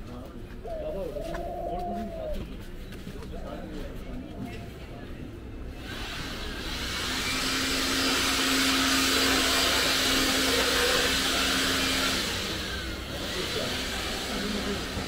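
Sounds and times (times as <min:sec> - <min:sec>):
machine air rushing hiss: 0:05.8 - 0:15.0.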